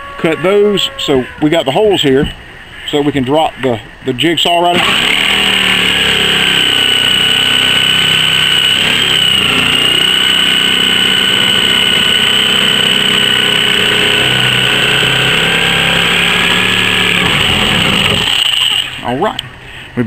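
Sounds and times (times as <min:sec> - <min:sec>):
electric jigsaw sawing plastic: 0:04.8 - 0:19.0.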